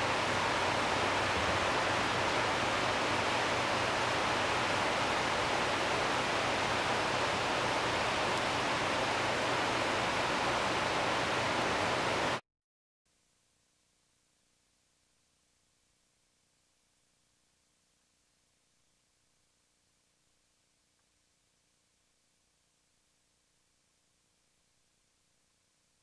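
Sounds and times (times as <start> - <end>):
steady rushing hiss: 0.0 - 12.4.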